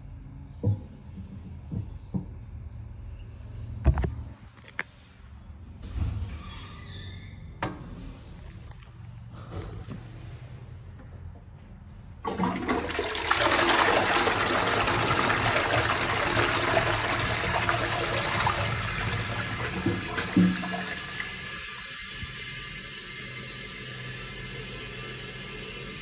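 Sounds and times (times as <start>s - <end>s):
toilet flushing: 12.2s - 26.0s.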